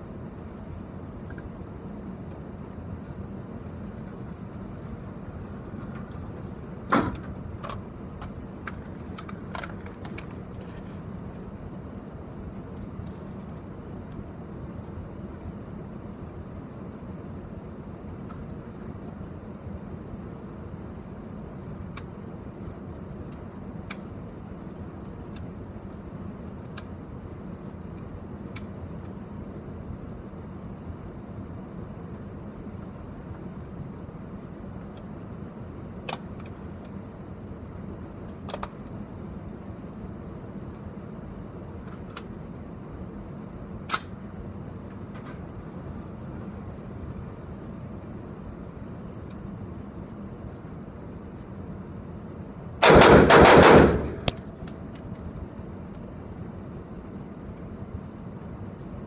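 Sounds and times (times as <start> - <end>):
background hum: 0.0 - 59.0
rifle rapid fire echoing indoors: 52.8 - 55.2.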